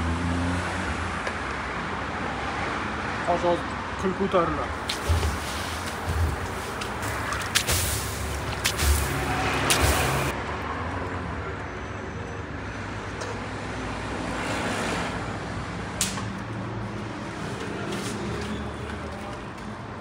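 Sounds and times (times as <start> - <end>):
traffic hum: 0.0 - 20.0
sharp click: 16.0 - 16.3.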